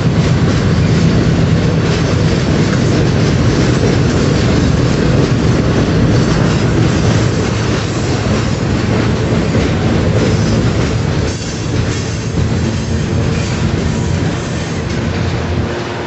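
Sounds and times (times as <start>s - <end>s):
train wheels rumbling on rails: 0.0s - 16.0s.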